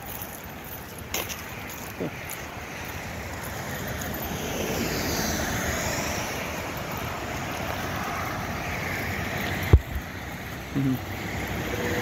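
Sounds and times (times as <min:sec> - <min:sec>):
road traffic going by: 0:00.0 - 0:12.0.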